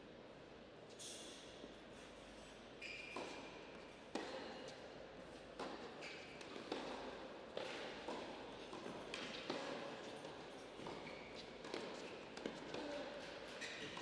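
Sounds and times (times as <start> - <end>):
shoe squeaks: 2.4 - 3.5, 6.0 - 6.3, 10.8 - 12.2, 12.8 - 14.0.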